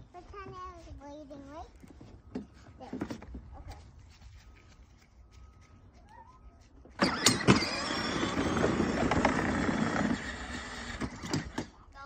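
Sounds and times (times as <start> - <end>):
plastic wheels rolling over grass: 6.9 - 11.8
electric toy motor whirring: 7.0 - 11.8.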